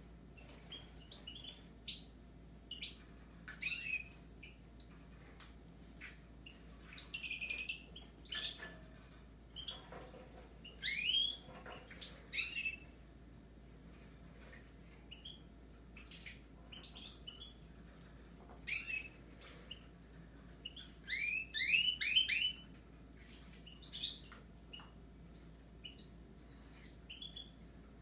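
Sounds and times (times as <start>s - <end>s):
finches chirping and twittering: 0.4s - 13.2s, 14.0s - 22.8s, 23.6s - 25.0s, 25.8s - 27.7s
buzzy bird trill: 2.7s - 10.0s, 10.6s - 11.7s, 12.3s - 13.0s, 15.1s - 22.7s, 25.8s - 27.6s.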